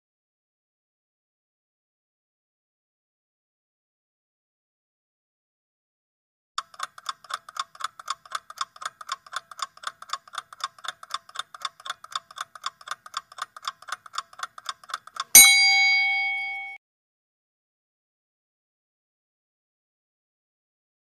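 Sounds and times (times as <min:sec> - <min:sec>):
clock ticking: 0:06.6 - 0:16.8
loud bell ding: 0:15.4 - 0:16.8.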